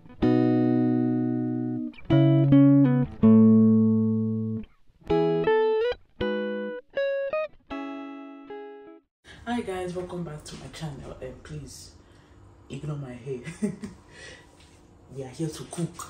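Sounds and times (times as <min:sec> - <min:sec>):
guitar plucked notes and chords: 0:00.0 - 0:09.1.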